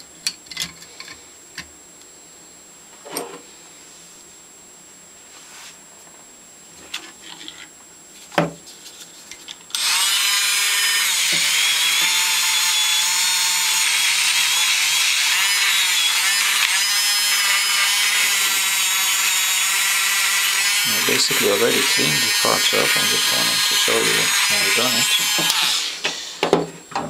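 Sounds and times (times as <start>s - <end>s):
rotary tool whine: 9.7s - 26.6s.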